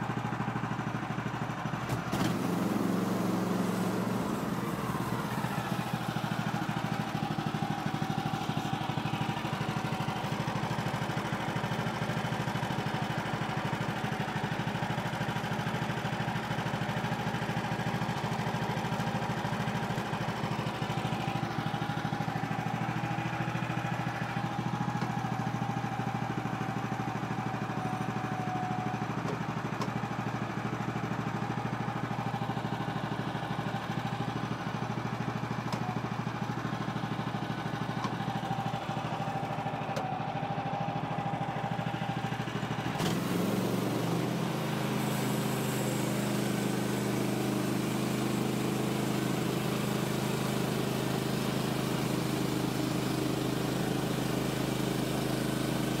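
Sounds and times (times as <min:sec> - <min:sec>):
bandsaw sawmill cutting wood: 0:01.8 - 0:13.8, 0:42.4 - 0:56.0.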